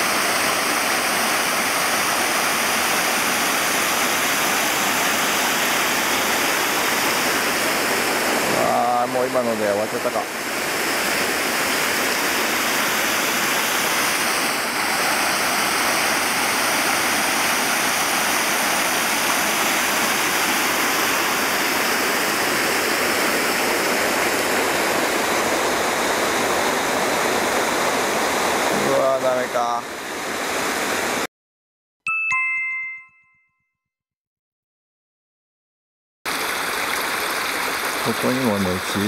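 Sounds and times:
water rushing: 0.0 - 31.3, 36.3 - 39.0.

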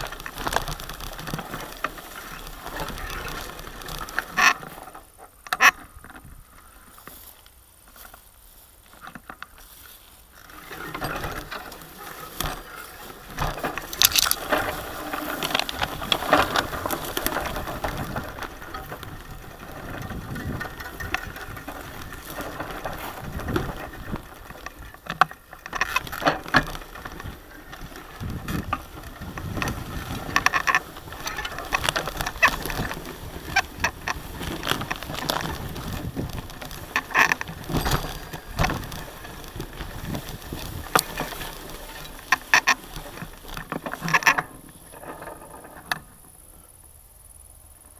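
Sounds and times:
stems swishing against bike: 0.0 - 45.5
sharp clicks and ticks: 13.9 - 14.8.

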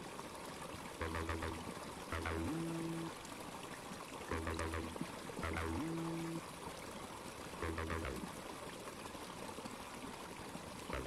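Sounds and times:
background music low melody: 1.0 - 3.2, 4.3 - 6.4, 7.6 - 8.3.

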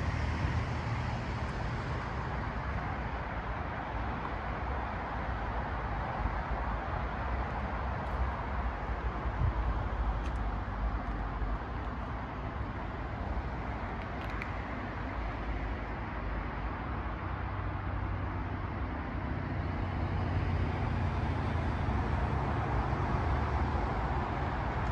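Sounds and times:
road traffic noise: 0.0 - 24.9.

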